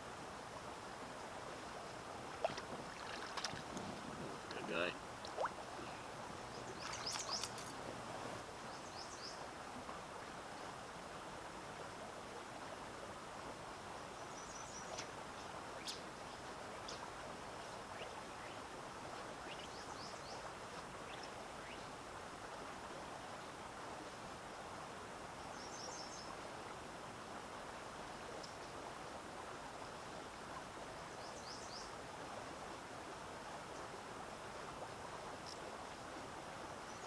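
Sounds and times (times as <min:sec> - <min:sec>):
outdoor hiss: 0:00.0 - 0:37.0
small water splash: 0:02.3 - 0:05.9, 0:06.6 - 0:07.8.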